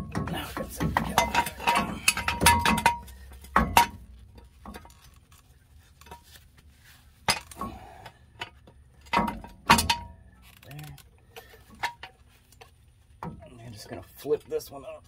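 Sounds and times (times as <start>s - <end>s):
metal tools clinking: 0.0s - 6.4s.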